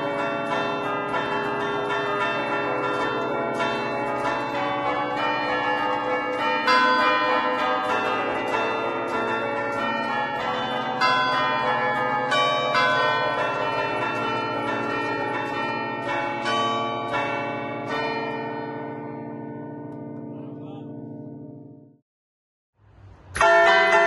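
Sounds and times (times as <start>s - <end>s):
church bells ringing melody: 0.0s - 22.0s, 23.0s - 24.0s.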